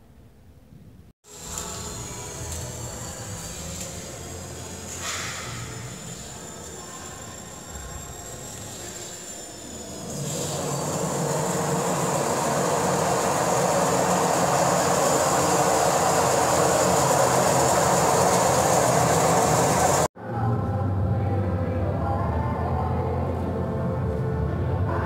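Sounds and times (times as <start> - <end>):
washing machines running: 1.2 - 20.2.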